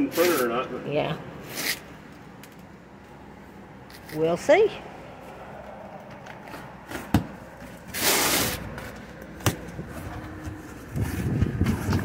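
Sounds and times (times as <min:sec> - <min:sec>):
tape and cardboard ripping: 0:01.5 - 0:01.9, 0:07.8 - 0:09.6.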